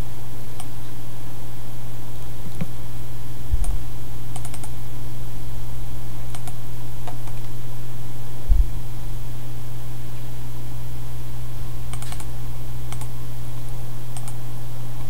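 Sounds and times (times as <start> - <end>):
steady low hum: 0.0 - 15.0
computer mouse clicks: 4.4 - 4.7, 6.3 - 7.5, 11.9 - 12.3, 12.9 - 13.1, 14.2 - 14.4
dull low thumps: 8.4 - 8.8.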